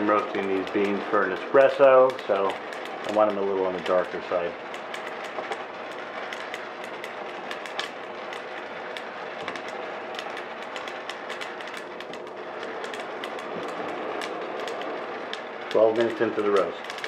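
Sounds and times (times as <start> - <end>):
coffee beans snapping: 0.0 - 17.0
oven fan whirring: 0.0 - 17.0
popper stirring beans: 0.0 - 17.0.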